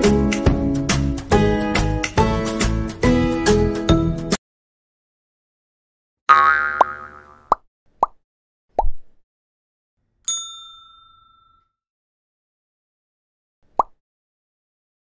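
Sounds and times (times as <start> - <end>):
bright bell-like ding: 10.3 - 11.7.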